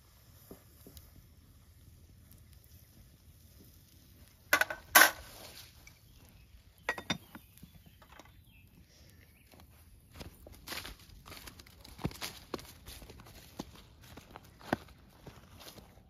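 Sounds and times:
glass lid clinking on metal: 6.9s - 7.3s.

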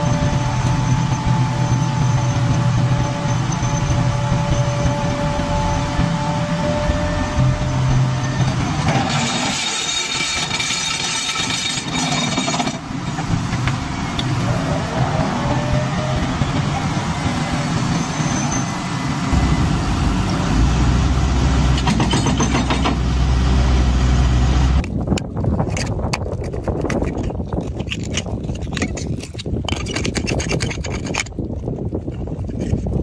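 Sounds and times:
excavator diesel rumble: 0.0s - 25.2s
metal blade scraping shells in mud: 9.0s - 12.8s, 25.7s - 31.4s.

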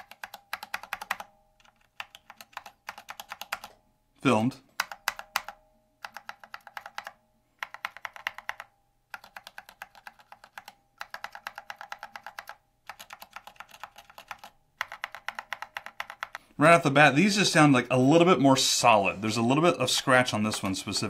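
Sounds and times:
fast typing on keyboard: 0.0s - 3.8s, 4.7s - 16.4s.

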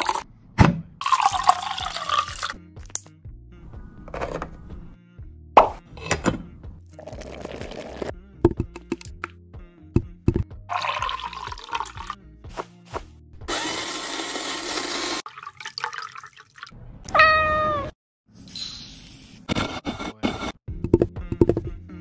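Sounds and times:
blender running: 13.5s - 15.2s
cat meowing: 17.1s - 18.0s.

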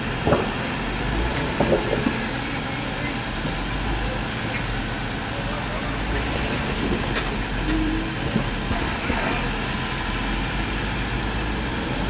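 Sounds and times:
engine running at low revs: 0.0s - 12.0s.

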